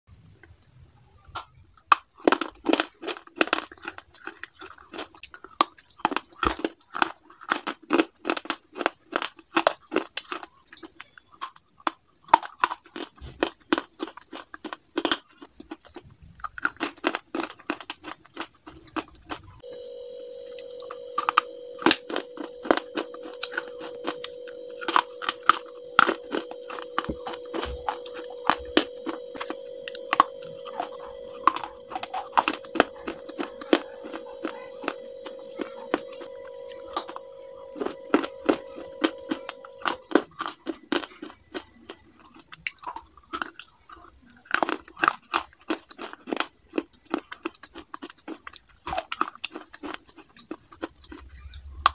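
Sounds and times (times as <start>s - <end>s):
pencils crunching while chewed: 1.9s - 51.9s
steady hum with high whine: 19.6s - 40.2s.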